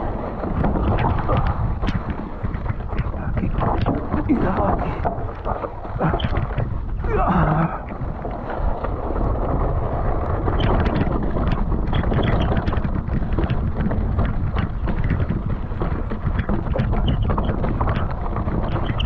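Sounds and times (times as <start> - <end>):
wind buffeting microphone: 0.0 - 19.0
small clicks and knocks: 0.4 - 6.8, 10.4 - 19.0.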